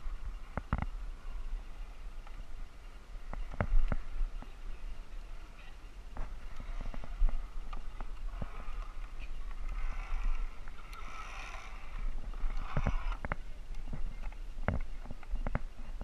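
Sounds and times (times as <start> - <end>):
carabiners clicking against wood: 6.5 - 15.7.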